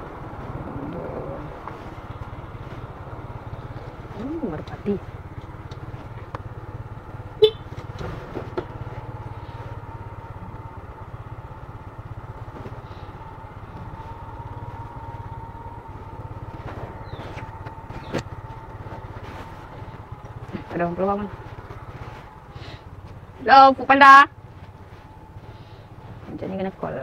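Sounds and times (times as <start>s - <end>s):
motorcycle engine running: 0.0s - 27.0s.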